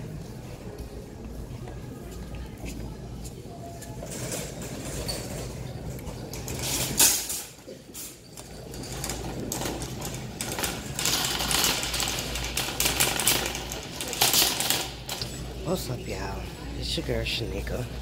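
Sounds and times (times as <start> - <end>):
shopping cart rattling on tiles: 3.8 - 15.5.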